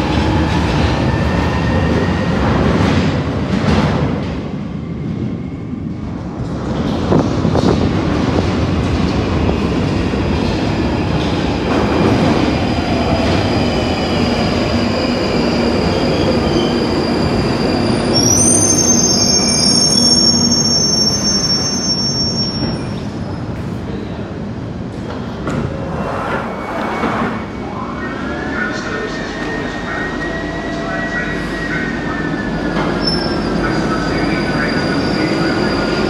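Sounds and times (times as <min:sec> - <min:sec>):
train wheels rumbling on rails: 0:00.0 - 0:20.6
high wheel squeal: 0:15.4 - 0:23.0.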